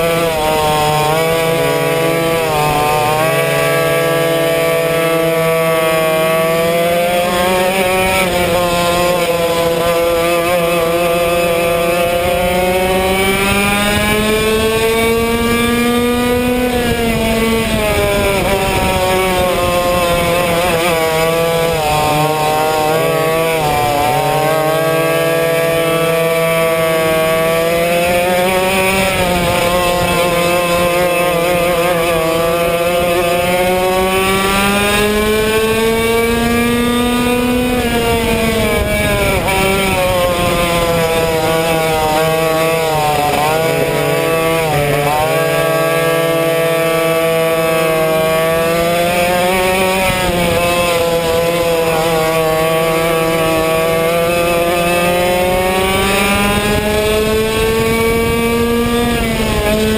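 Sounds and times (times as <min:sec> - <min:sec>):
two-stroke kart engine revving: 0:00.0 - 0:59.9.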